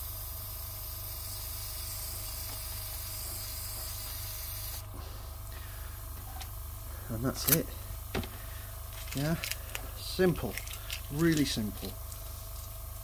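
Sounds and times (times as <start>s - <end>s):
airbrush hissing: 0.0s - 7.2s.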